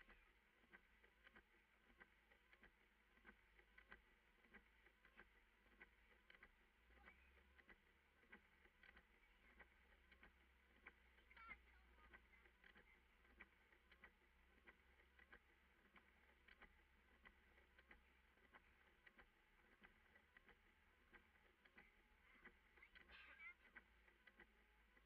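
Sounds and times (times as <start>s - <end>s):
faint light ticks: 0.0s - 25.0s
low steady hum: 0.0s - 25.0s.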